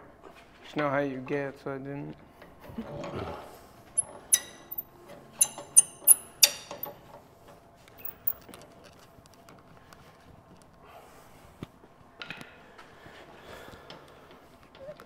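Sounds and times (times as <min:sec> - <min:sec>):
metal wrench clinking: 0:04.0 - 0:06.9, 0:08.0 - 0:08.4.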